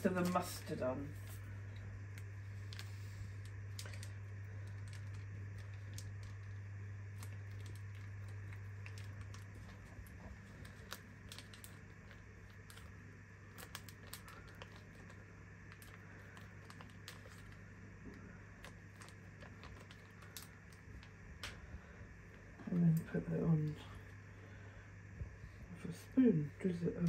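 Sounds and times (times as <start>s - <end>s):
low steady hum: 0.0s - 27.0s
paper sachet crinkling: 0.1s - 21.6s.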